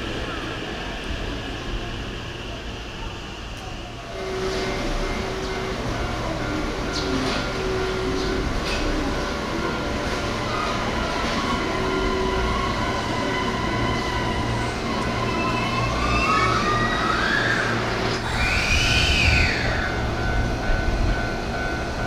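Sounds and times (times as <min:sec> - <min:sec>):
electric train motor whine: 0:00.0 - 0:22.0
low train rumble: 0:00.0 - 0:22.0.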